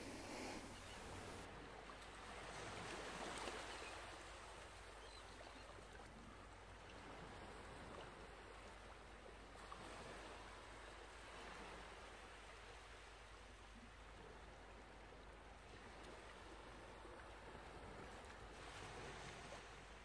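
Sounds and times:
faint steady hiss: 0.0 - 1.5.

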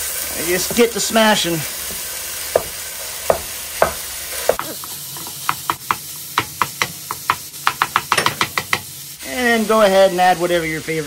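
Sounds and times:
meat sizzling in a frying pan: 0.0 - 11.0
spatula knocking and scraping pan: 1.8 - 8.9.

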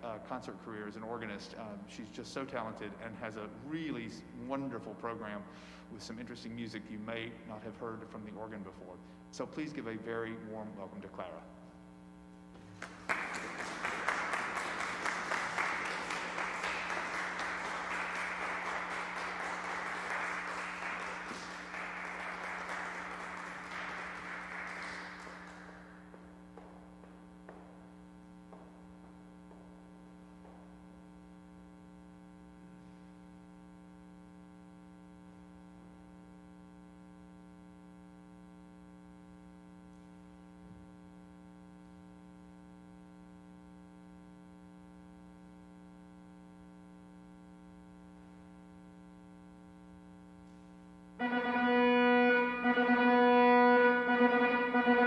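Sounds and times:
steady low hum: 0.0 - 55.0
audience applauding: 12.7 - 26.2.

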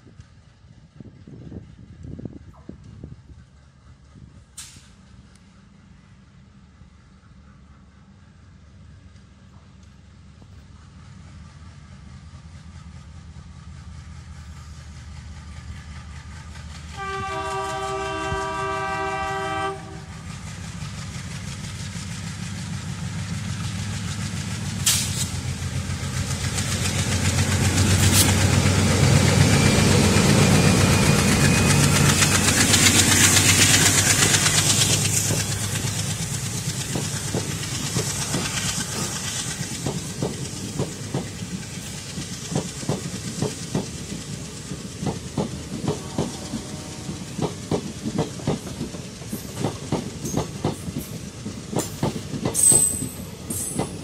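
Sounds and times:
diesel locomotive engine rumble: 0.0 - 54.0
train wheels clacking over rail joints: 14.2 - 54.0
locomotive multi-tone horn: 17.0 - 20.1, 45.8 - 47.3.

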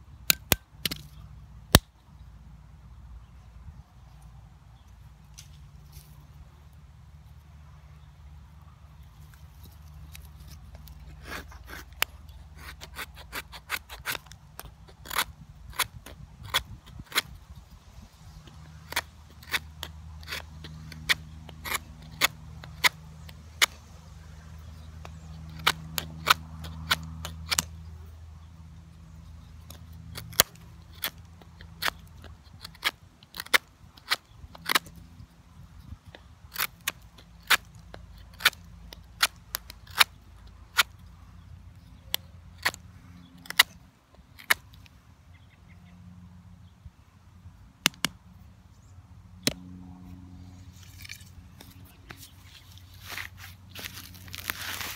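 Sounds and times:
knife clicking and snapping wood: 18.4 - 23.8, 25.0 - 27.8, 29.6 - 35.0, 35.8 - 41.0, 43.4 - 43.8, 47.8 - 48.2.

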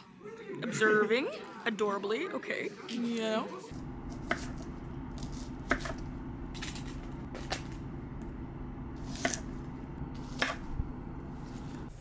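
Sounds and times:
knife cutting on wooden board: 4.2 - 4.6, 5.2 - 6.0, 9.0 - 9.5, 10.2 - 10.7.

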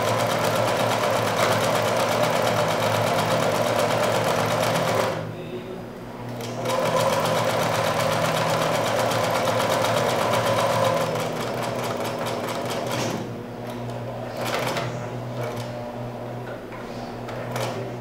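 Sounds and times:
sewing machine stitching: 6.4 - 13.2.

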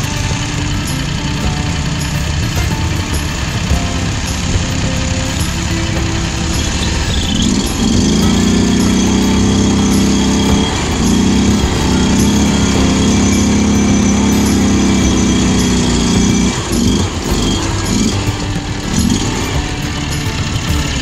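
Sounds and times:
mower engine revving high: 0.0 - 21.0.

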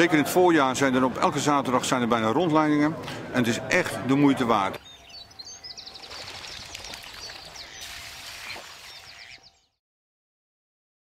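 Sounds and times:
steady outdoor hiss: 0.0 - 9.7
small birds chirping and trilling: 4.8 - 9.8.

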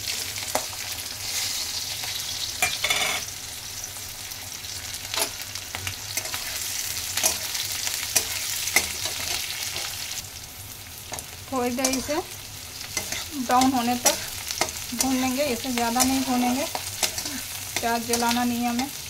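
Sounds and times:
onion sizzling in oil: 0.0 - 19.0
metal spatula scraping pan: 2.6 - 3.3.

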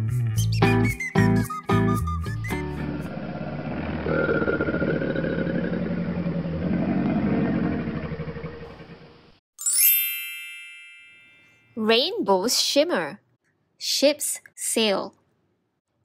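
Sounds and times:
alligator growl: 2.8 - 9.4
bright chime ringing: 9.6 - 11.8.

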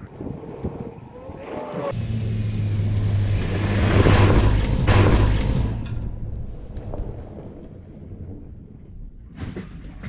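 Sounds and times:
truck engine hum: 1.9 - 6.7.

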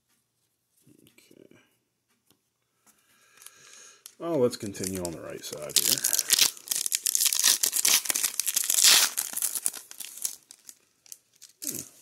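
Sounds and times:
foil wrapper crinkling and tearing: 3.3 - 12.0.

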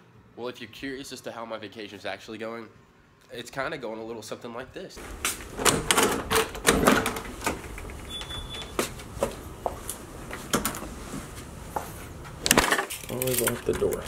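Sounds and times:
door handles and latches clicking: 5.0 - 9.4, 12.4 - 14.0.

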